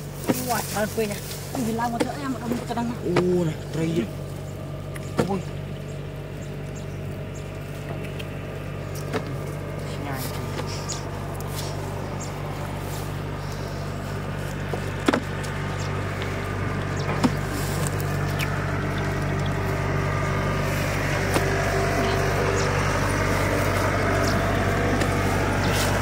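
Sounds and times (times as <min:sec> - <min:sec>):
small engine humming: 0:00.0 - 0:26.0
sharp clicks: 0:07.9 - 0:09.2.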